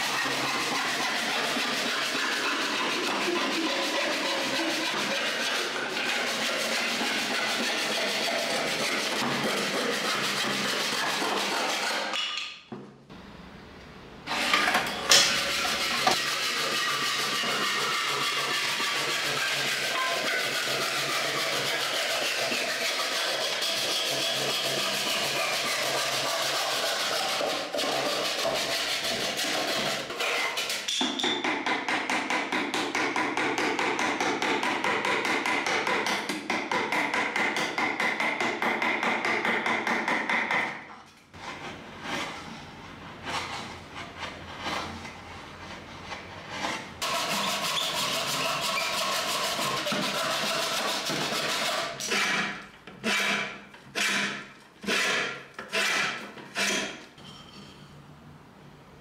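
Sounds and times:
handsaw cutting wood: 0.0 - 12.1, 14.3 - 30.9, 46.5 - 57.0
chisel scraping wood: 0.0 - 12.2, 14.3 - 30.8, 41.3 - 57.1
hand plane strokes: 0.0 - 12.2, 14.3 - 30.8, 41.4 - 57.1.

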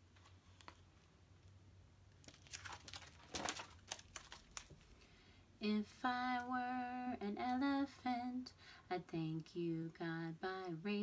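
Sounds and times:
plastic pages crinkling: 2.2 - 5.0.

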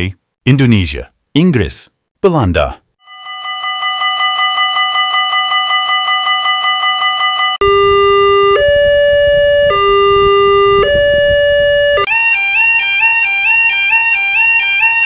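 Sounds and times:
crossing bell ringing rapidly: 3.0 - 7.6
two-tone crossing alarm: 3.0 - 15.0.

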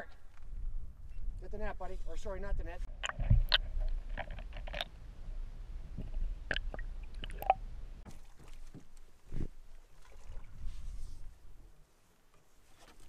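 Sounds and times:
low underwater rumble: 2.8 - 8.1.

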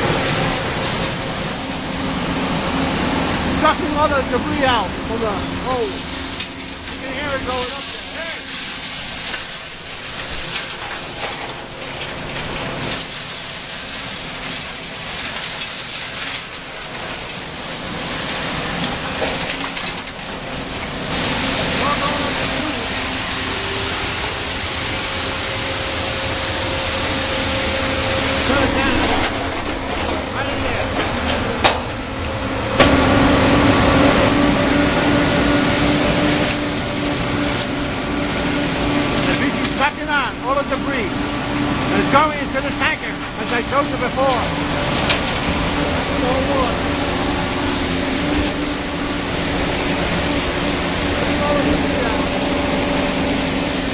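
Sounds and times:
suction hose rushing hiss: 0.0 - 10.6, 20.8 - 31.5, 32.4 - 53.9
debris crackling through pipe: 0.0 - 53.9.

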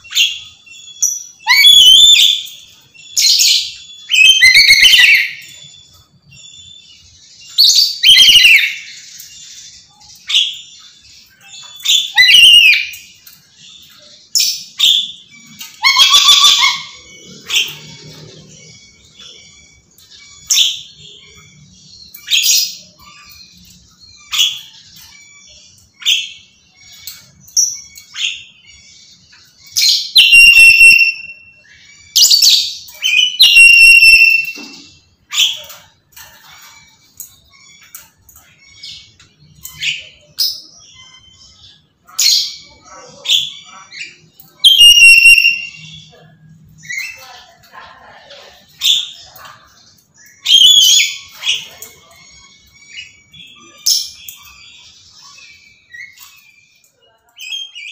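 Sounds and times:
parrot screeching: 1.4 - 2.5, 11.8 - 12.9, 15.7 - 18.6, 29.8 - 31.5, 32.2 - 34.6, 43.0 - 45.9.

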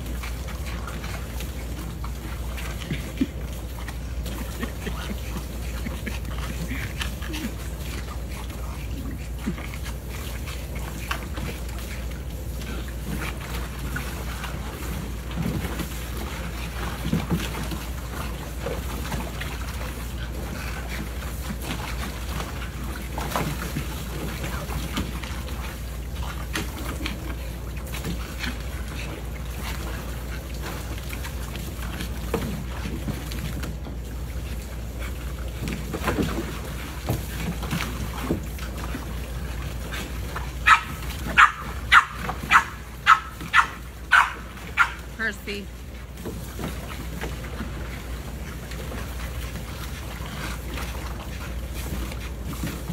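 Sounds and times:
water splashing: 0.0 - 52.9
fountain spray: 41.4 - 45.6.

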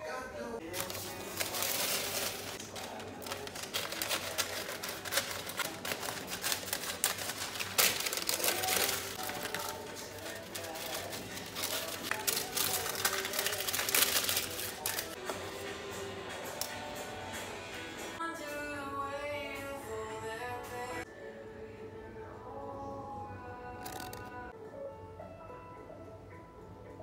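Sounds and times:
baking paper rustling and crinkling: 0.6 - 15.2.

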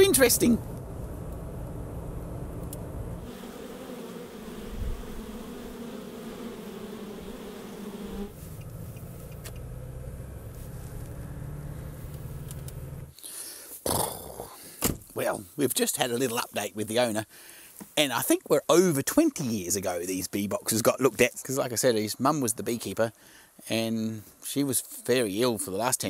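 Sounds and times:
road rumble inside car: 0.1 - 3.2, 8.4 - 13.1
honey bees buzzing: 2.0 - 13.2.

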